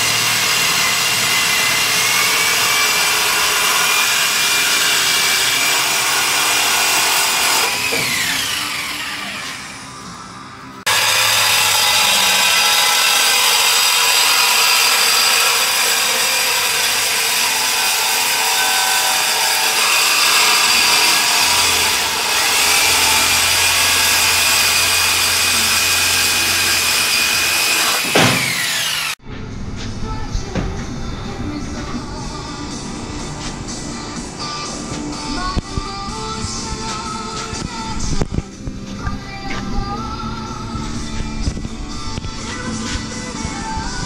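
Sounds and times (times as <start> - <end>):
reciprocating saw cutting metal: 0.0 - 10.2, 10.8 - 29.2.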